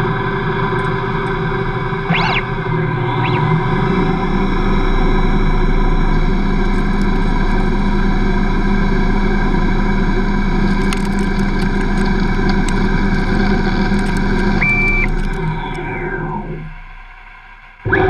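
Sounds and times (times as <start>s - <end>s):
lathe motor and spindle whine: 0.0s - 18.0s.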